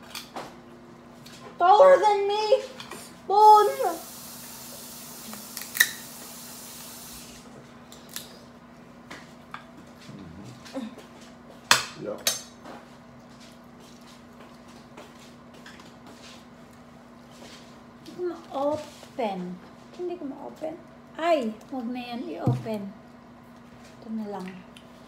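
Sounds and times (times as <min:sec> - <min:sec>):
steady hiss: 0:03.6 - 0:07.4.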